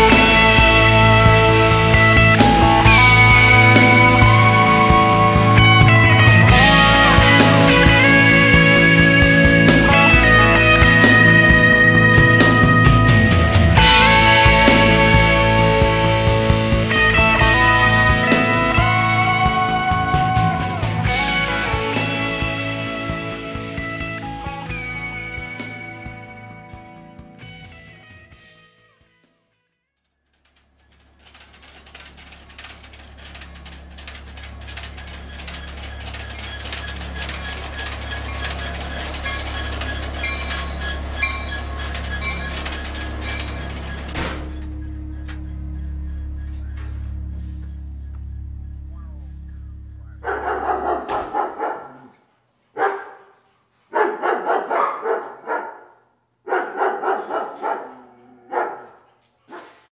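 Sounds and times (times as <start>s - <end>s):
train wheels clacking: 30.4s - 44.7s
low rumble of freight train: 30.8s - 51.0s
dog barking: 50.2s - 52.2s, 52.8s - 59.9s.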